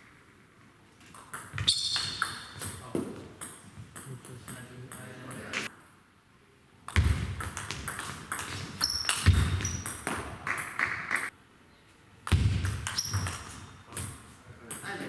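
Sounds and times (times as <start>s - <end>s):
short high squeaks: 1.6s - 2.4s.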